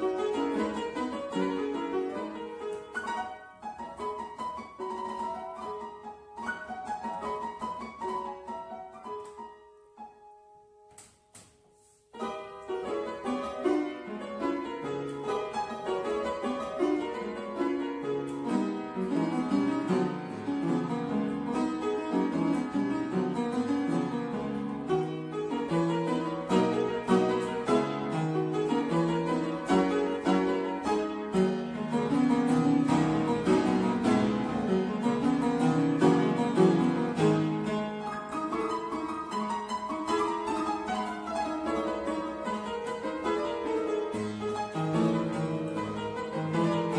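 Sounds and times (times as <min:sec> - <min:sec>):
piano playing a lively dance: 0:00.0 - 0:46.9.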